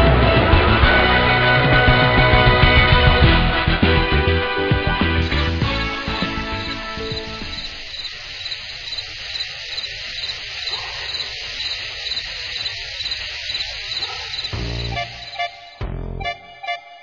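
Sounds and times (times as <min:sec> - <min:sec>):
insects chirping: 0:05.9 - 0:15.8.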